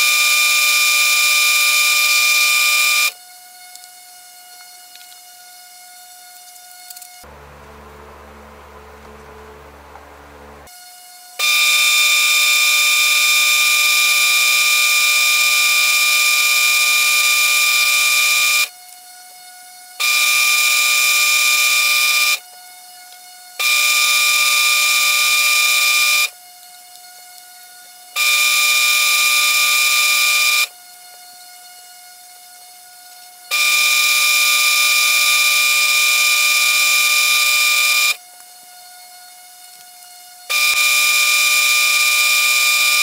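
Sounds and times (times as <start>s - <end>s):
lathe motor whine: 0.0s - 43.0s
sandpaper hissing on spinning lathe: 3.2s - 7.3s.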